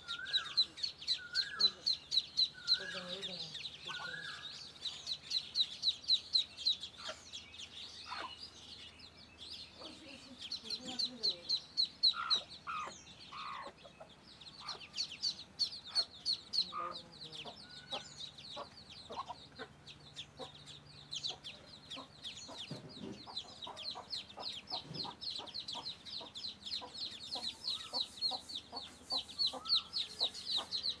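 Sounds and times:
ducklings peeping: 0.0s - 31.0s
adult duck calling: 11.9s - 13.8s, 15.6s - 18.0s.

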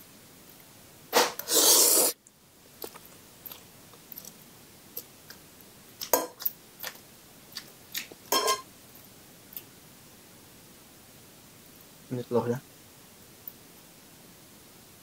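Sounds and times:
person chewing noodles: 1.4s - 2.2s, 2.8s - 5.4s, 6.0s - 8.3s.

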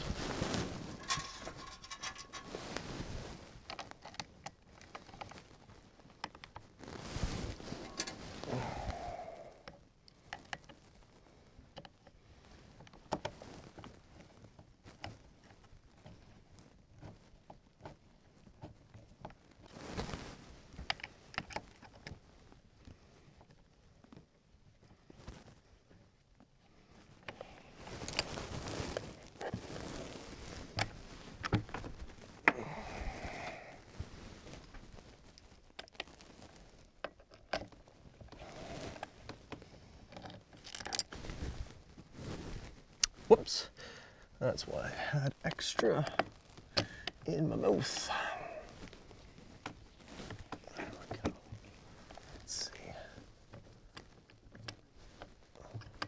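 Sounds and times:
screws and hand tool clicking: 1.0s - 2.6s.

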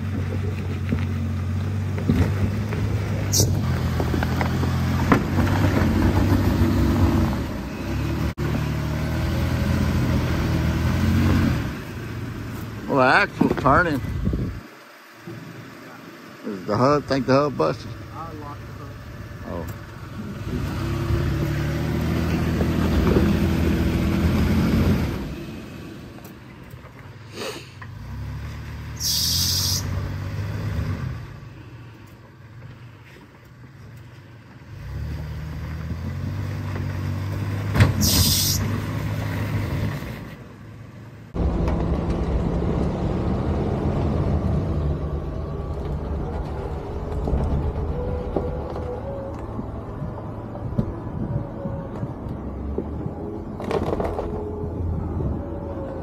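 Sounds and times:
truck engine revving: 0.0s - 14.6s, 16.4s - 26.4s, 27.3s - 31.5s, 34.7s - 40.4s, 41.3s - 56.0s
short high hissing bursts: 29.0s - 29.9s, 38.0s - 38.6s.

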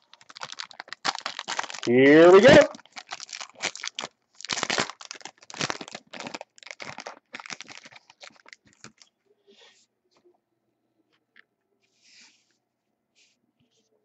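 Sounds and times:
foil wrapper tearing and crinkling: 0.0s - 9.0s.

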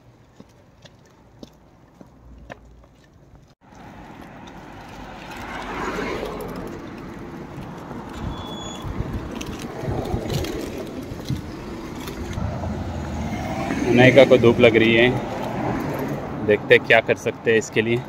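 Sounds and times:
steady road noise: 0.0s - 18.0s
car passing: 3.6s - 18.0s.

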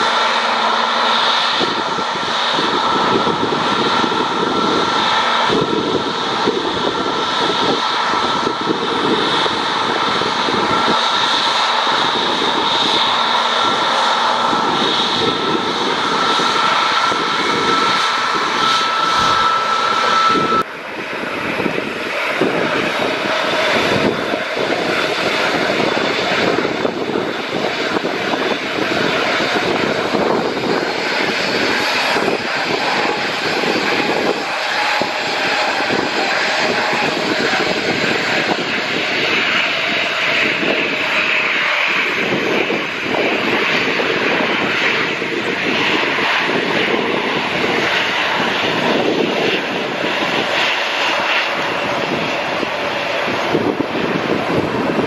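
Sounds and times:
thin steady whine: 0.0s - 42.2s
jet engine rush: 0.0s - 55.0s.

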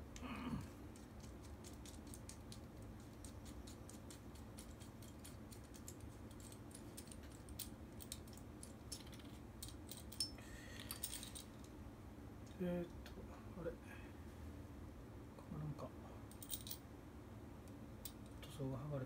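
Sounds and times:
light clicks of small parts: 0.9s - 11.8s.

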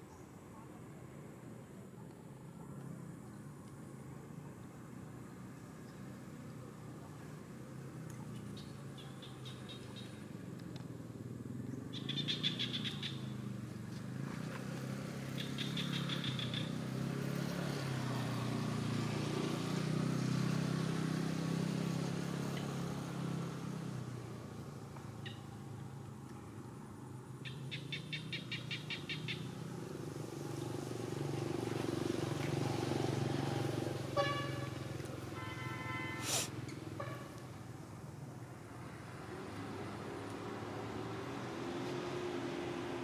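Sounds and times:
vehicle passing: 4.3s - 43.0s.

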